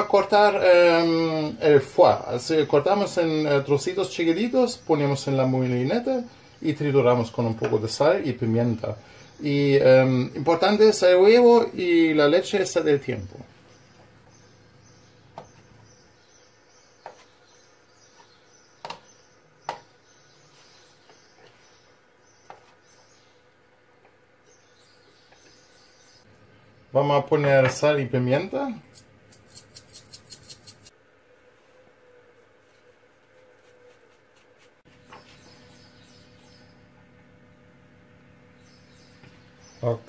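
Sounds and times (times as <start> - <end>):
metal spice shaker ticking: 28.9 - 30.9.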